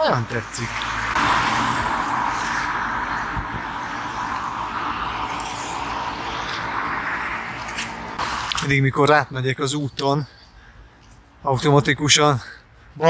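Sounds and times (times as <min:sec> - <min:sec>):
car tyre noise passing: 0:00.0 - 0:08.8.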